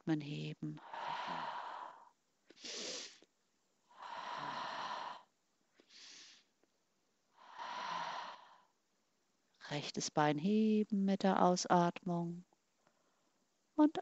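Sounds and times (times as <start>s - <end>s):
woman breathing: 0.8s - 6.6s, 7.3s - 8.8s.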